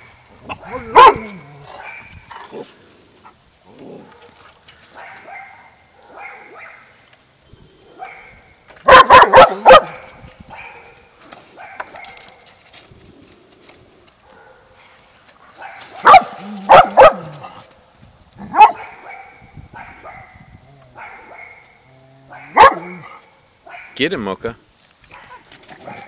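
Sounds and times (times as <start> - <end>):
dogs barking: 0.0 - 2.6, 4.0 - 7.0, 7.9 - 12.4, 14.2 - 14.8, 15.6 - 17.6, 18.4 - 24.1, 25.1 - 26.0.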